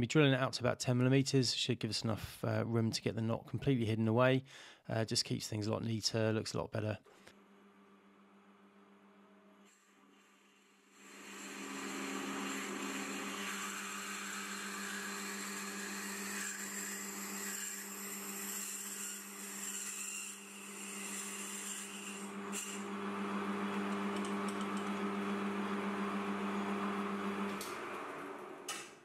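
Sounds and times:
drill boring into brass: 11.0s - 26.1s
metal lathe running: 11.1s - 16.6s.

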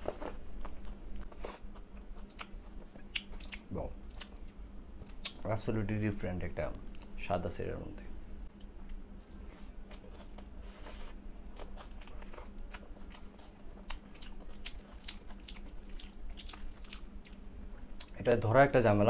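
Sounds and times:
wet chewing and mouth clicks: 0.0s - 5.4s, 8.5s - 18.2s.

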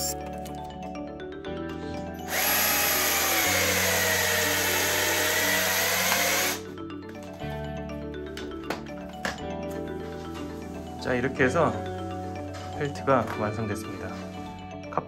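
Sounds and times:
cordless drill motor whine: 2.2s - 6.6s.

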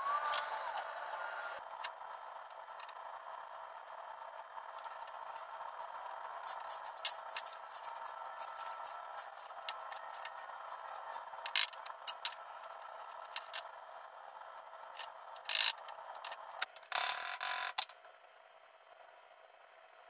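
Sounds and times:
faint steady hum: 0.0s - 20.0s
hand tools and metal parts clinking: 6.4s - 12.4s.

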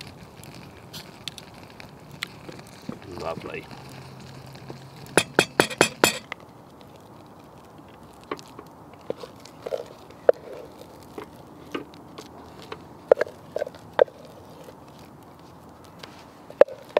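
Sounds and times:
spoon clinking on metal pot: 5.2s - 6.3s
spoon tapping and scraping: 5.2s - 6.3s.

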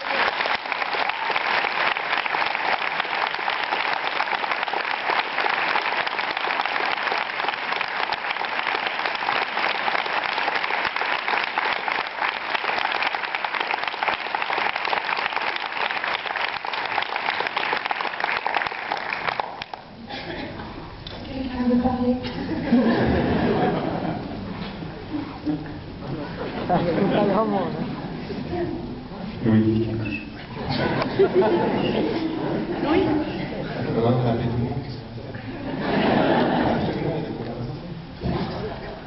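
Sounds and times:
audience applause: 0.0s - 19.9s.

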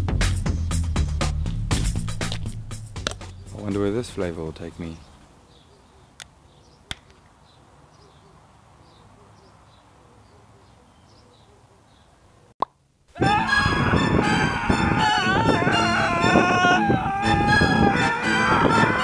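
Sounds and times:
birds chirping: 1.3s - 12.5s
loud music: 13.2s - 19.0s.

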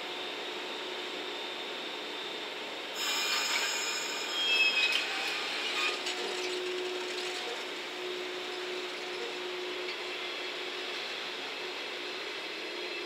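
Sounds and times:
electric train motor hum: 0.0s - 13.0s
air hiss with metallic squeaks: 3.0s - 6.0s.

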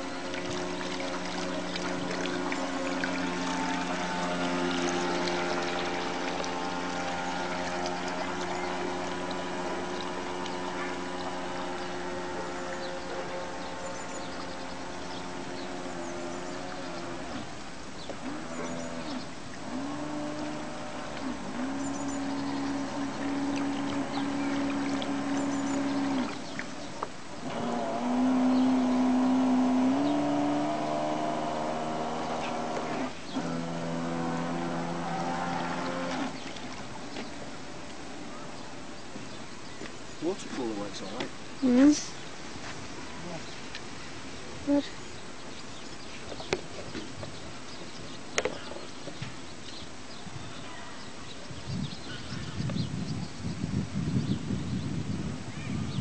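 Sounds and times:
electric motor whining: 0.0s - 26.8s, 27.4s - 37.2s
rushing water: 0.0s - 51.5s.

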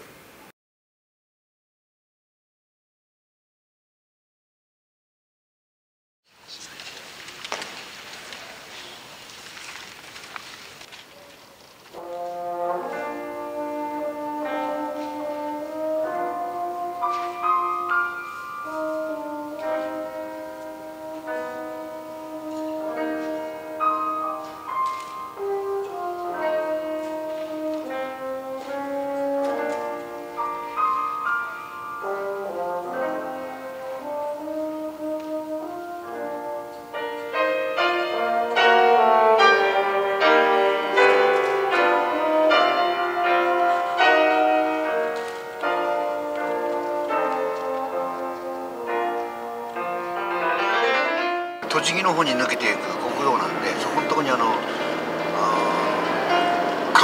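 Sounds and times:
grand piano accompaniment: 6.6s - 57.0s
french horn playing slow melody: 11.9s - 51.6s, 54.8s - 57.0s.

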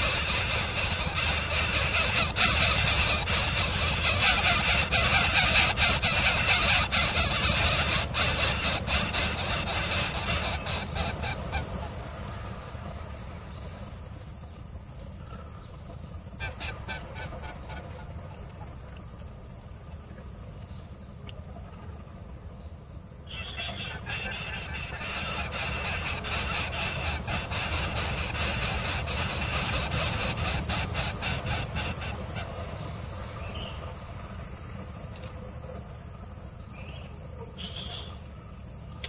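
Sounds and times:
birds giving harsh calls: 0.0s - 14.5s, 16.2s - 18.7s, 23.2s - 35.4s, 36.8s - 38.8s
faint high peeps: 23.3s - 29.3s.

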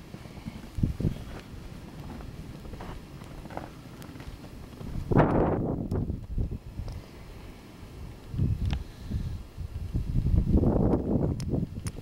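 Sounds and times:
wind buffeting microphone: 0.0s - 7.1s, 7.9s - 12.0s
faint ticks: 6.8s - 7.0s.

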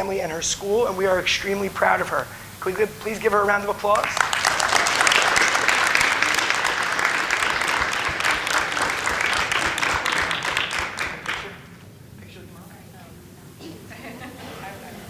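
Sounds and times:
people applauding: 2.7s - 11.8s.

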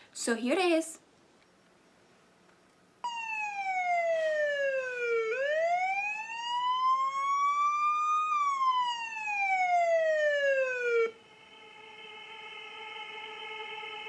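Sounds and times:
siren wail: 3.0s - 11.2s.

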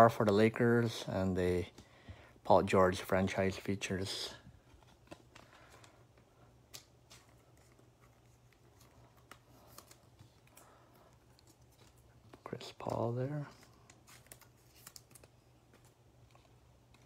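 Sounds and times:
trading cards clicking and rustling: 2.7s - 17.0s.

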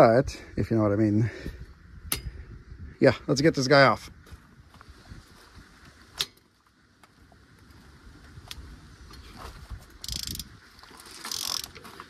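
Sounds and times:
ratchet wrench clicking: 10.0s - 10.5s, 11.2s - 11.8s.

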